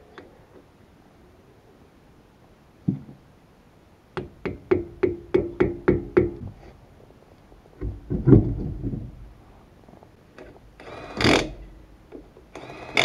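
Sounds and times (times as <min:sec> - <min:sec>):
metallic knocks on a wheel hub: 0:04.2 - 0:06.4
heavy low thud and scrape: 0:07.8 - 0:09.6.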